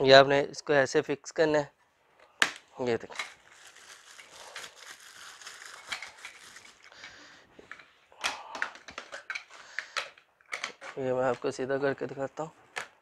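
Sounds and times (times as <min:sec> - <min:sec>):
plastic rustling and crinkling: 0:02.9 - 0:07.9.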